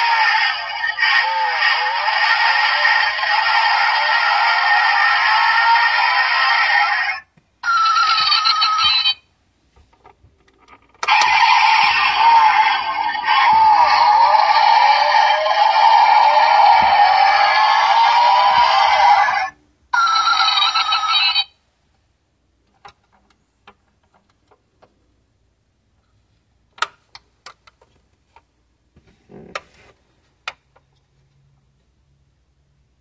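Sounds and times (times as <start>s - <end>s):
tinny electronic car sound: 0.0s - 9.3s, 11.0s - 21.6s
toy car doors clicking: 10.5s - 19.0s.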